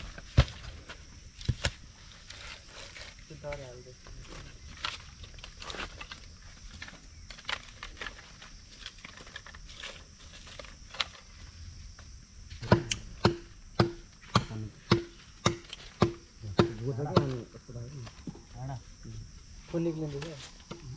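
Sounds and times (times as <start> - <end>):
sticks clattering and crackling: 0.0 - 13.4
sharp wooden knocks: 12.6 - 17.4.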